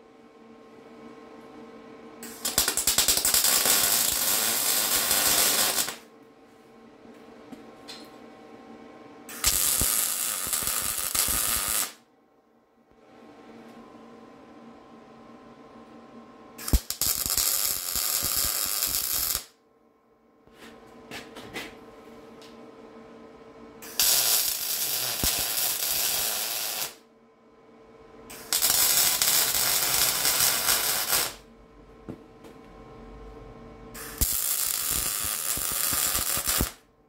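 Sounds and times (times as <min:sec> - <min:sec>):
faint steady hum: 0:00.0 - 0:37.0
welder crackling: 0:02.2 - 0:06.0, 0:09.4 - 0:12.0, 0:16.6 - 0:19.5, 0:23.9 - 0:27.0, 0:28.3 - 0:31.4, 0:34.0 - 0:36.8.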